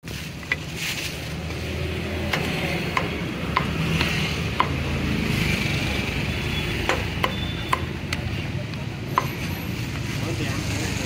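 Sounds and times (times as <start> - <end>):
cleaver chopping on wooden block: 2.2 - 5.0, 6.8 - 8.2, 9.1 - 9.4.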